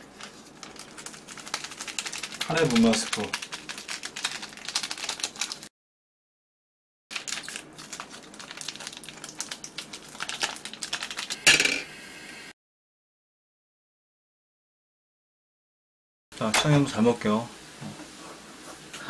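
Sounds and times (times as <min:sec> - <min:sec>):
foil sachet crinkling: 0:00.0 - 0:05.7, 0:07.1 - 0:11.4
noodles simmering and crackling: 0:00.0 - 0:05.7, 0:07.1 - 0:11.4.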